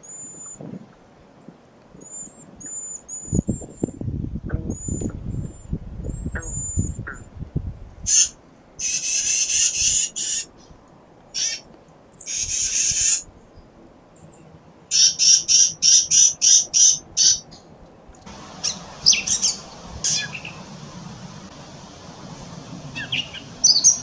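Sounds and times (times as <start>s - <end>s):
background hiss: 0.0s - 24.0s
chickadees calling: 8.1s - 13.3s, 14.9s - 17.6s, 18.3s - 24.0s.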